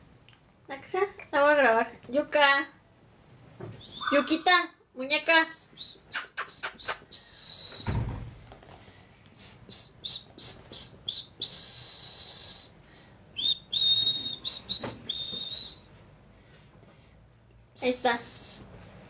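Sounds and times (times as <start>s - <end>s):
high whistled chirps: 3.8s - 4.6s, 9.4s - 12.8s, 13.4s - 15.8s.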